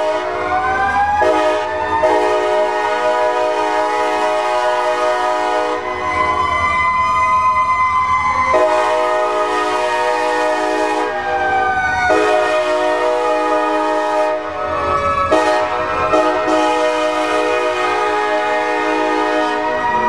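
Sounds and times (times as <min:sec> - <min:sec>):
locomotive air horn blasts: 0:00.0 - 0:00.5, 0:01.2 - 0:06.1, 0:08.5 - 0:11.4, 0:12.1 - 0:14.6, 0:15.2 - 0:20.0
siren rising and falling: 0:00.1 - 0:20.0.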